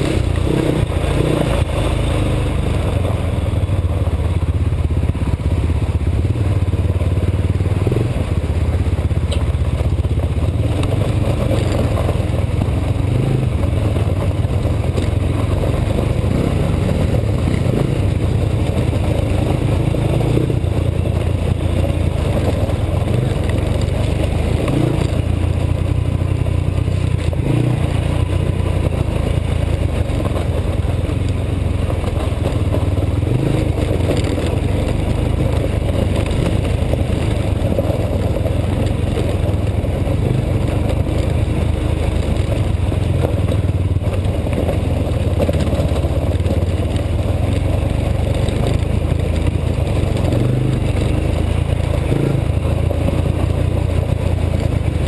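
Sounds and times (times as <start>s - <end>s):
quad engine running: 0.0s - 55.0s.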